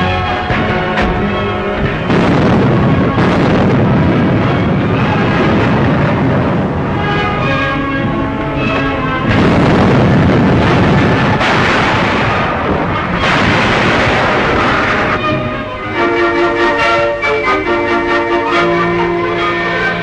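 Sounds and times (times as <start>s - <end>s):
dense rushing noise: 0.0s - 15.9s
orchestral music: 0.0s - 20.0s.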